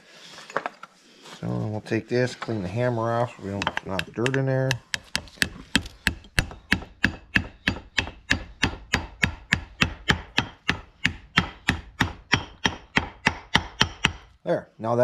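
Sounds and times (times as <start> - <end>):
hammer tapping metal: 3.5 - 14.3.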